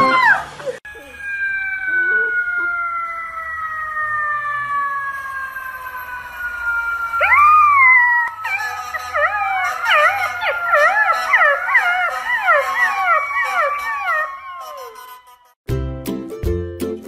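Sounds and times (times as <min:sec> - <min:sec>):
puppy howling: 0:00.0 - 0:15.3
siren-like wail falling: 0:00.0 - 0:15.6.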